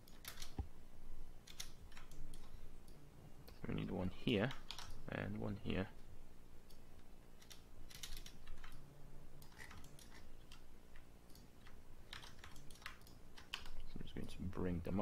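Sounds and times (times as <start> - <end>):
keyboard keystrokes: 0.0 - 0.6, 11.3 - 13.8
faint low hum: 0.0 - 15.0.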